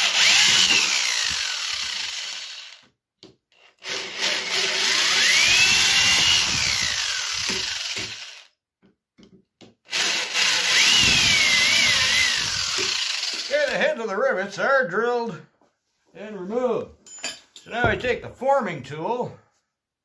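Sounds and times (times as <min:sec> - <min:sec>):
electric drill drilling rivets: 0:00.0 - 0:02.9, 0:03.5 - 0:08.5, 0:09.8 - 0:13.8.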